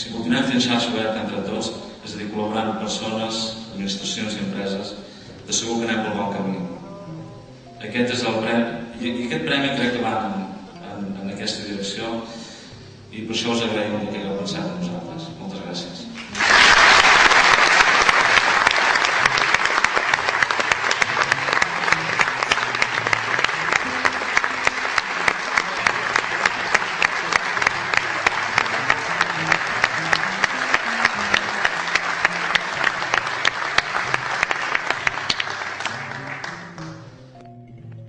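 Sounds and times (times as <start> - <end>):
faint music: 0.0 - 38.0
audience applauding: 16.2 - 37.2.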